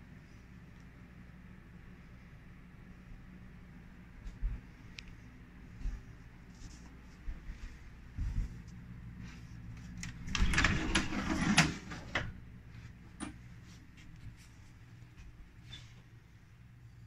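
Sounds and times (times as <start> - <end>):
closet door clicking and rubbing: 9.9 - 12.4.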